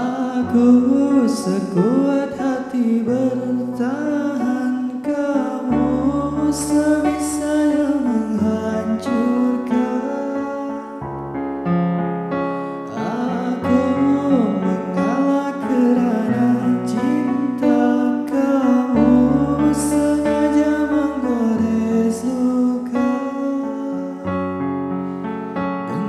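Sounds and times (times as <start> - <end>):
keyboard playing slow ballad: 0.0 - 26.0.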